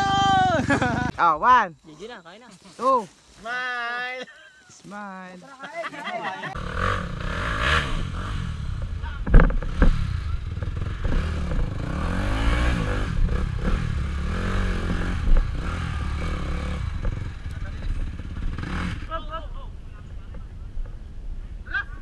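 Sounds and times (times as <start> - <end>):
motorcycle engine revving: 6.5 - 19.4.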